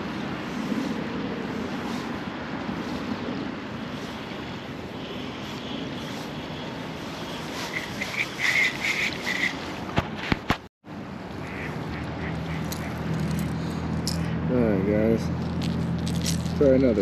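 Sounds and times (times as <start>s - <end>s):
river water flowing: 0.0s - 10.0s
wind on microphone: 0.0s - 10.6s.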